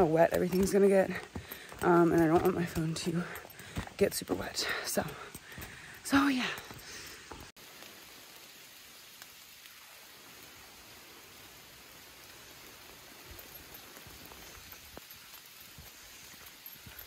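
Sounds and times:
light rain on foliage: 0.0s - 17.0s
raindrop ticks: 0.0s - 17.0s.

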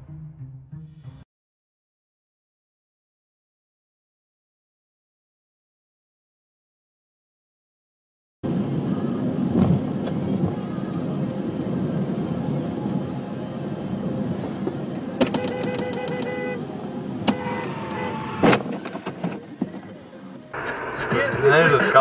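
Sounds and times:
car road and engine rumble: 8.4s - 22.0s.

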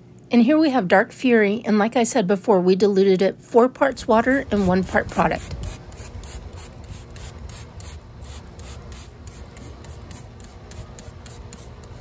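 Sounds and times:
steady low rumble: 3.8s - 10.5s.

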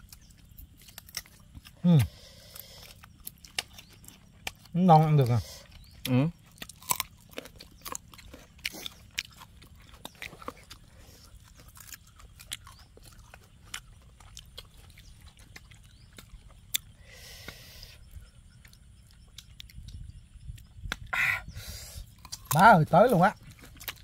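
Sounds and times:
crunching and chewing fruit: 0.0s - 24.0s.

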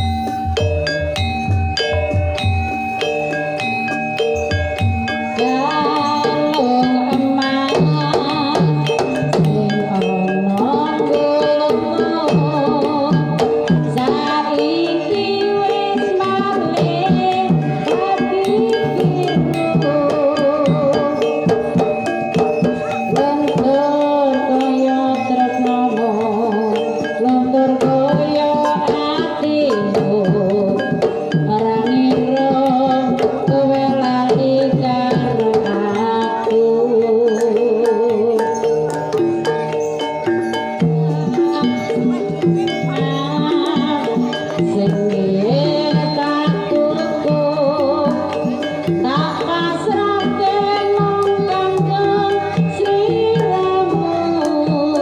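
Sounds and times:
drum strokes: 0.0s - 36.3s
gamelan gongs and mallet instruments: 0.0s - 55.0s
woman singing with vibrato: 5.3s - 21.8s, 22.8s - 39.2s, 41.0s - 55.0s.

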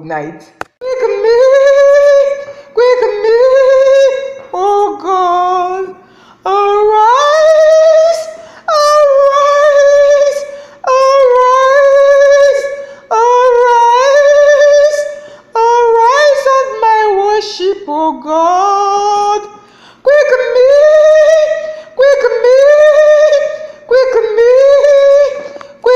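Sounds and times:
breaths: 2.4s - 2.8s, 6.0s - 6.5s, 8.3s - 8.7s, 10.5s - 10.8s, 12.8s - 13.1s, 15.2s - 15.5s, 19.6s - 20.1s, 21.6s - 22.0s, 25.5s - 25.8s.

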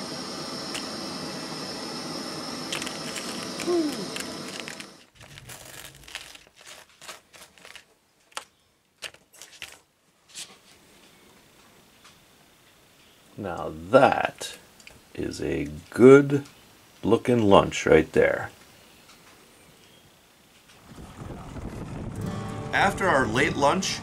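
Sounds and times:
gas burner hissing: 0.0s - 5.1s.

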